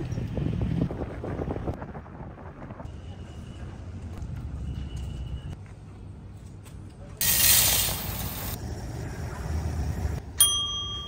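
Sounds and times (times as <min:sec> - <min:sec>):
steady low rumble: 0:00.0 - 0:05.6
sharp burst of hiss: 0:07.2 - 0:08.6.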